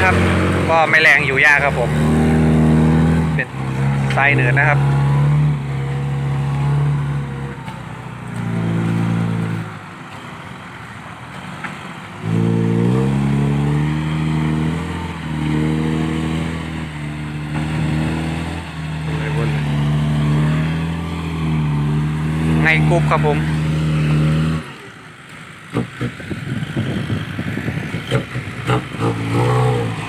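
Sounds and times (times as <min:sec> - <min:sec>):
dump truck engine revving: 0:00.0 - 0:30.0.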